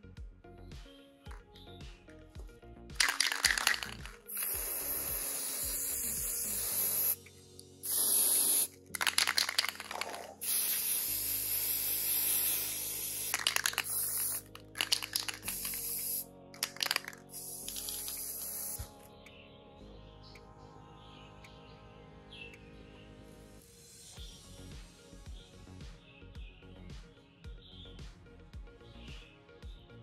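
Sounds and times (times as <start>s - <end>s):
aerosol spray can hissing: 3.0s - 19.0s.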